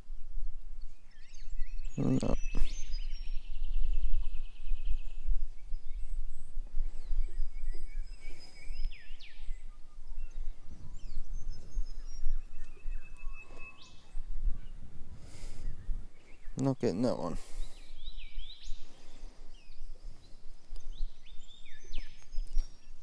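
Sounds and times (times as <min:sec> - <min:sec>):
birds calling: 0:00.0 - 0:23.0
wind rumbling on microphone: 0:00.0 - 0:23.0.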